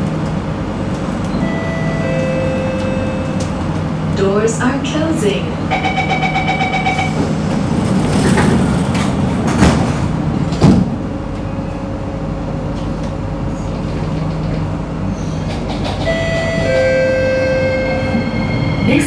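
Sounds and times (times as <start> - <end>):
train running rumble: 0.0 - 19.0
train doors sliding shut: 6.9 - 11.6, 12.7 - 19.0.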